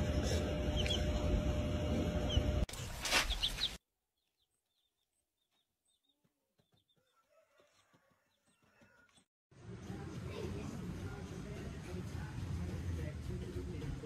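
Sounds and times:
baby chicks peeping: 0.2 - 1.2, 2.2 - 2.6, 3.2 - 9.2.

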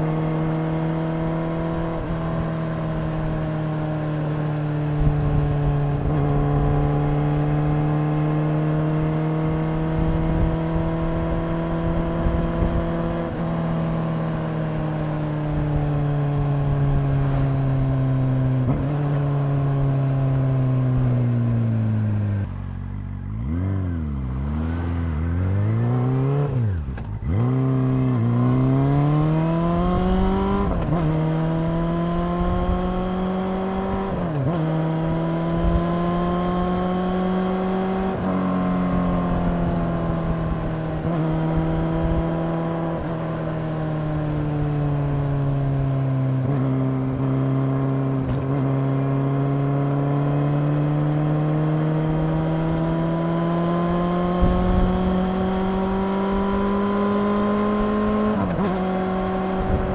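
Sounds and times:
motorcycle engine running: 0.0 - 59.9
wind noise: 9.7 - 13.6, 28.7 - 43.1, 53.3 - 59.9.

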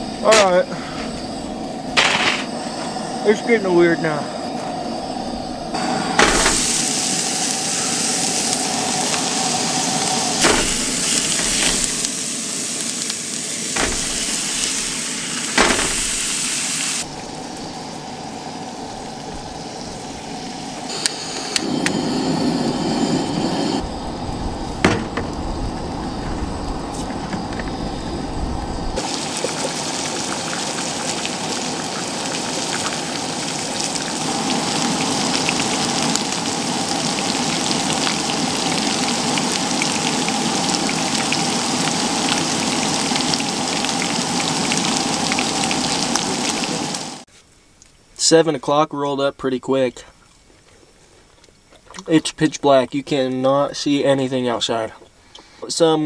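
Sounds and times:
steak sizzling in a frying pan: 5.8 - 17.8, 29.0 - 47.2.

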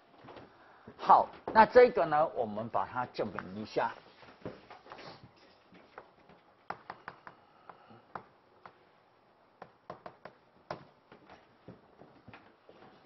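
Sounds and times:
chalk tapping on blackboard: 6.7 - 8.8, 9.6 - 10.8.

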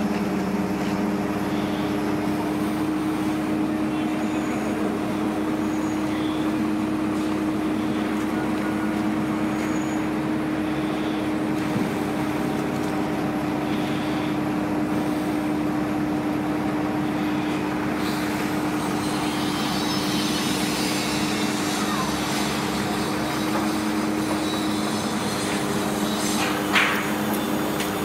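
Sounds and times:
crane engine humming: 0.0 - 28.0
mechanical noise: 17.0 - 28.0.

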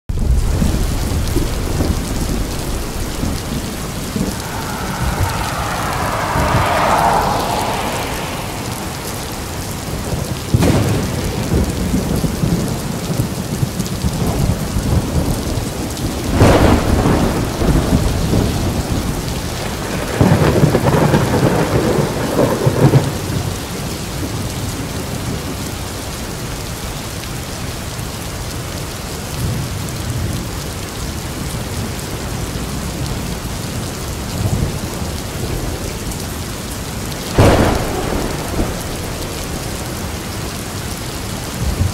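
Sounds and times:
thunder claps and rumbles: 0.1 - 23.6, 37.2 - 41.9
steady rain: 0.1 - 41.9.

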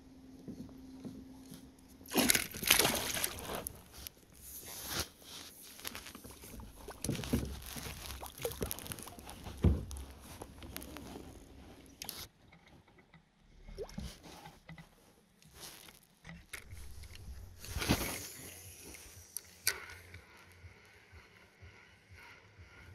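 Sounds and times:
water splashing: 2.0 - 4.1, 6.3 - 12.1.

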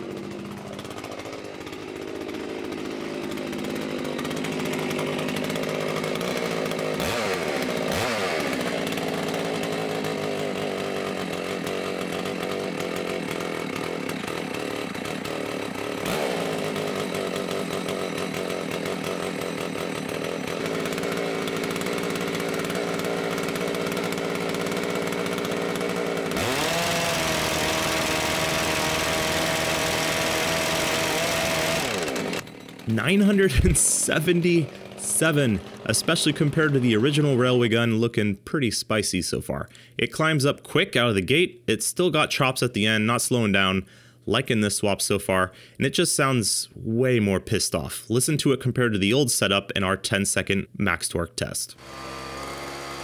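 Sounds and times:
two-stroke engine running: 0.0 - 37.7, 51.8 - 53.0
engine revving to full speed: 3.3 - 32.4, 51.8 - 53.0.

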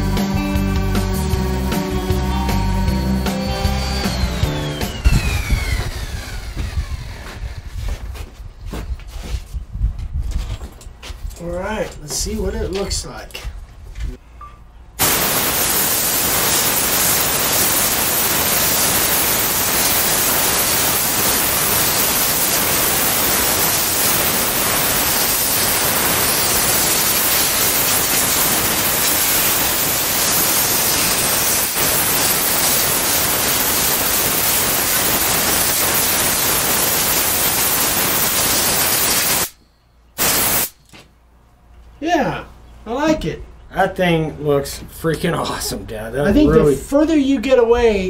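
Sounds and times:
compressed air nozzle hissing: 15.0 - 39.6, 40.2 - 40.8.

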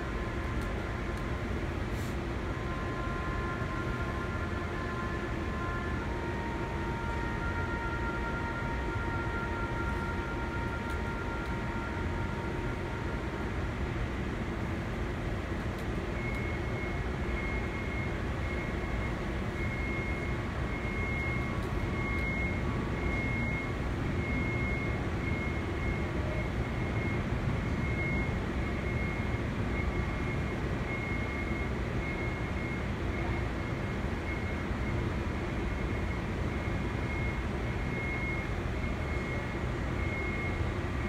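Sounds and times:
low rumble of machinery: 0.0 - 41.0
faint high beep: 16.1 - 33.5, 37.1 - 40.7.

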